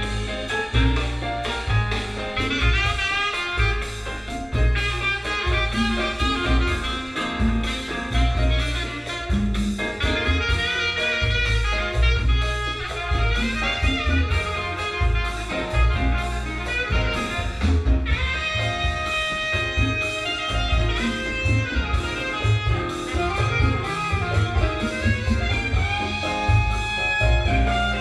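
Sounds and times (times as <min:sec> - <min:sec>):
jazz-like brass music: 0:00.0 - 0:28.0
pulsing bass: 0:00.0 - 0:28.0.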